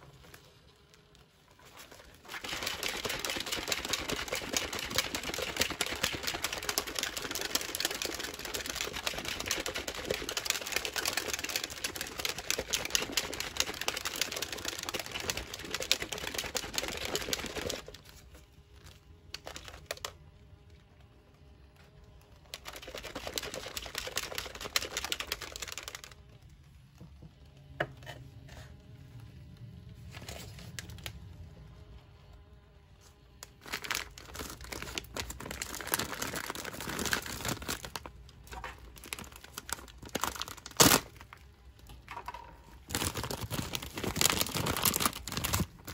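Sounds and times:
shaker bottle rattling: 1.6 - 20.1, 22.5 - 26.2, 33.4 - 45.9.

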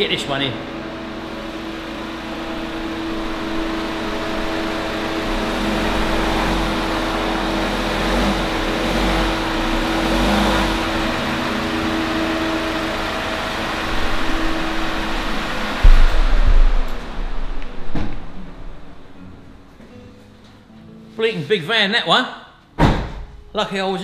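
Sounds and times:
steady background hum: 0.0 - 7.7, 10.8 - 20.9
van engine rumbling: 0.0 - 19.8.

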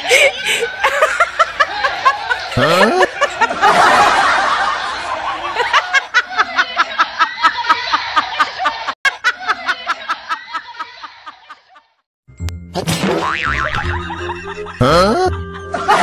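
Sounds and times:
person laughing: 0.0 - 3.8, 13.3 - 16.0.

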